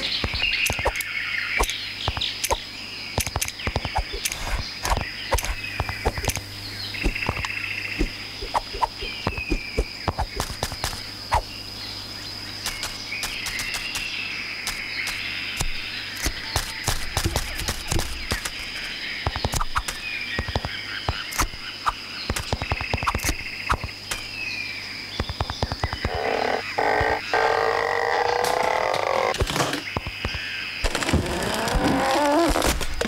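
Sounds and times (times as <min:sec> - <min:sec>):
chirping and croaking calls: 0:00.0 - 0:33.0
low hum: 0:01.6 - 0:22.0
quick clicks and pops: 0:03.2 - 0:06.4, 0:12.6 - 0:14.1, 0:19.3 - 0:21.6.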